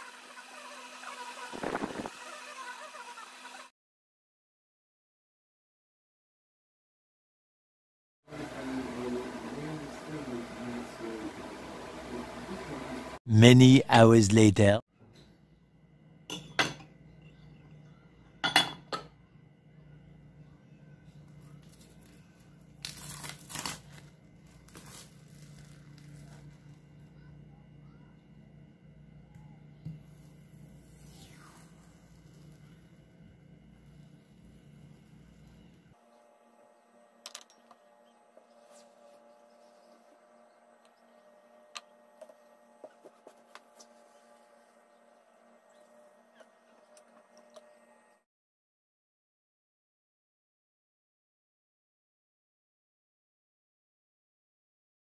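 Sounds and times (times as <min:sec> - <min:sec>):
plastic cling wrap crinkling: 0:21.6 - 0:26.8.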